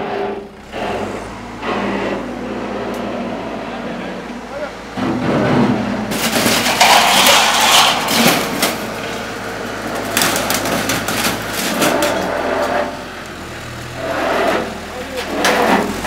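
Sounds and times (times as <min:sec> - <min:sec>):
backhoe engine running: 0:00.0 - 0:16.0
sharp metal impacts: 0:04.9 - 0:13.0
metal panels crashing and scraping: 0:05.0 - 0:13.0, 0:14.2 - 0:16.0.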